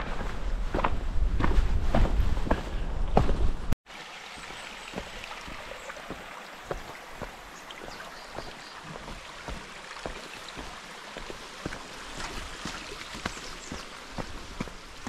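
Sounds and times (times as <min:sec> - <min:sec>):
soft footsteps on path: 0:00.0 - 0:15.0
rushing water: 0:03.8 - 0:15.0.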